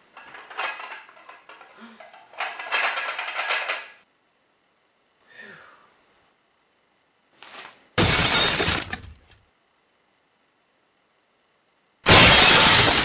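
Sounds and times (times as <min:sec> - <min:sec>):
stacked plates rattling: 0:00.2 - 0:04.0
plate shattering: 0:08.0 - 0:09.1, 0:12.1 - 0:13.0.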